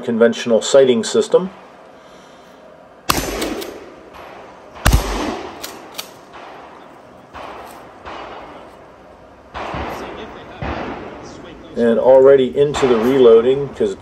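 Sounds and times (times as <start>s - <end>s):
shotgun shots with echo: 3.1s - 8.7s, 9.5s - 11.5s, 12.6s - 13.6s
sharp cracks and clanks: 3.1s - 8.9s, 9.5s - 11.4s.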